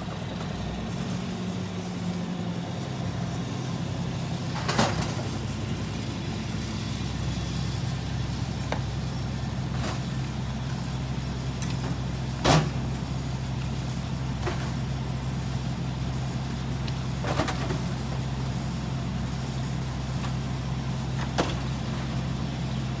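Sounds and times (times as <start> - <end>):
truck diesel engine idling: 0.0 - 23.0
boxes thudding into truck hopper: 11.9 - 12.9.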